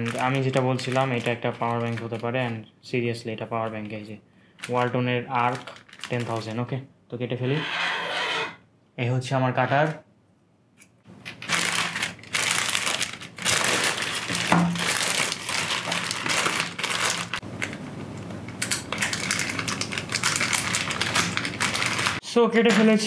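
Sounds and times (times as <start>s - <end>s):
plastic mailer bag crinkling: 0.0s - 2.6s, 4.6s - 6.6s, 11.2s - 17.4s, 18.9s - 22.2s.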